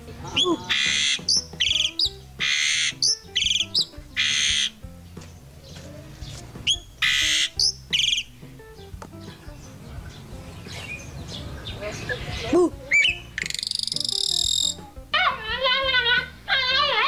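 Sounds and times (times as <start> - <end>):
faint background music: 0.0 - 17.0
bird screeching and whistling: 0.2 - 4.8, 6.6 - 8.4, 12.1 - 17.0.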